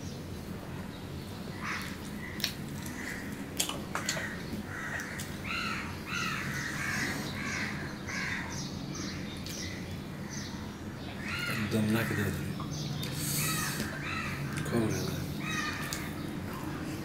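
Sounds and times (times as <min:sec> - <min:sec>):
bird calling: 0:04.0 - 0:16.4.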